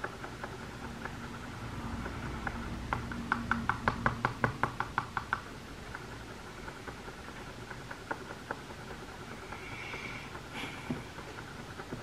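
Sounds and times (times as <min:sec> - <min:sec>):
mixing tool tapping a dish: 0:02.4 - 0:05.5.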